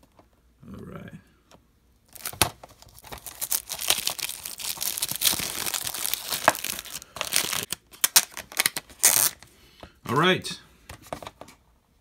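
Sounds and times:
plastic wrap crackling and tearing: 2.1s - 9.4s.

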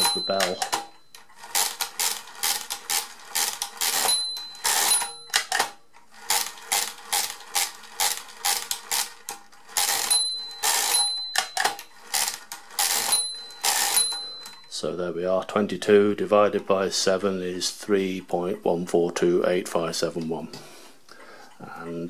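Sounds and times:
calculator bell ringing: 0.0s - 5.6s, 9.7s - 15.0s
mechanical calculator crank clattering: 0.0s - 14.8s.

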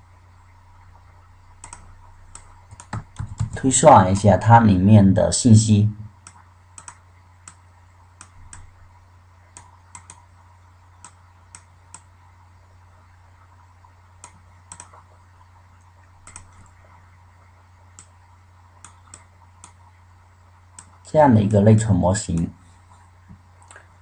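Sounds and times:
steady low hum: 0.0s - 24.0s
mouse and keyboard clicks: 1.6s - 3.6s, 6.2s - 7.6s, 9.6s - 10.2s, 14.2s - 15.0s, 16.2s - 16.7s.

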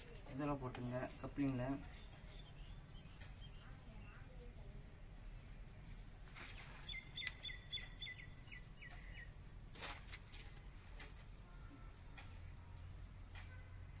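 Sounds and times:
bird chirping: 0.3s - 4.6s, 6.4s - 9.4s.

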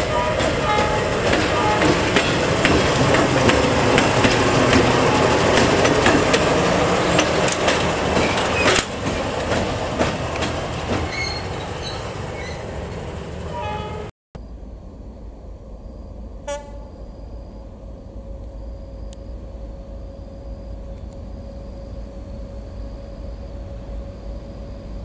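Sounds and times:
wheels clacking over rail joints: 0.0s - 14.1s
diesel locomotive engine running: 0.0s - 25.0s.

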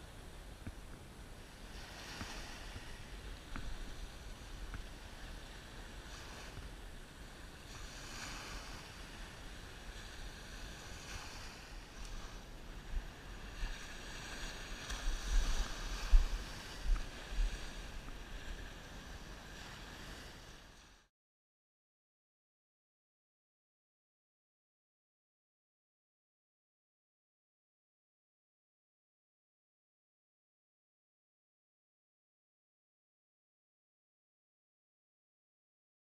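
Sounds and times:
small waves washing on sand: 0.0s - 21.1s
wind buffeting microphone: 0.5s - 20.9s.

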